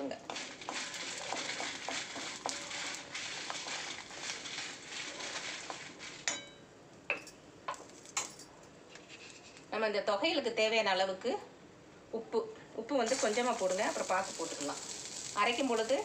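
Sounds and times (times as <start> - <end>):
light sizzle of frying: 0.0 - 9.8, 13.0 - 16.0
metal spatula scraping a pan: 0.1 - 6.5, 13.1 - 16.0.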